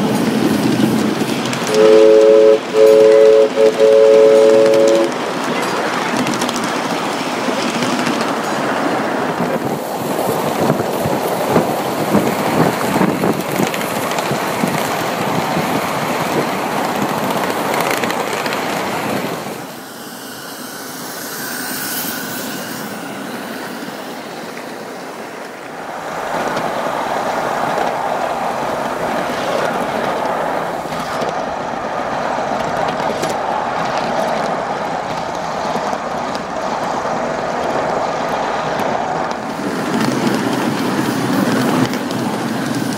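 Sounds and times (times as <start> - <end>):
train rolling noise: 0.0 - 42.9
small wheels clattering over rail joints: 5.1 - 19.7.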